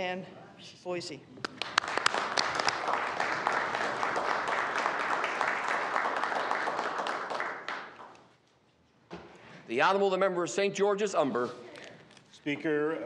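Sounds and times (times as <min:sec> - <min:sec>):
crowd applause: 0:01.5 - 0:08.1.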